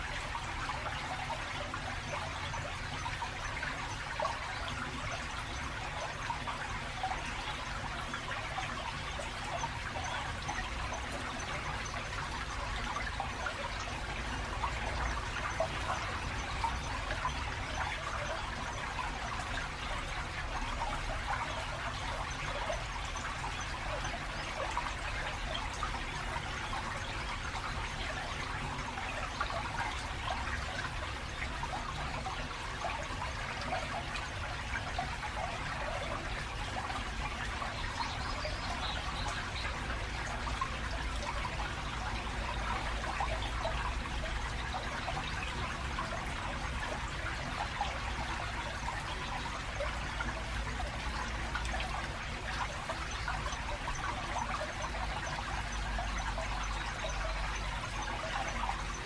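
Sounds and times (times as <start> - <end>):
stream trickling over stones: 0.0 - 59.0.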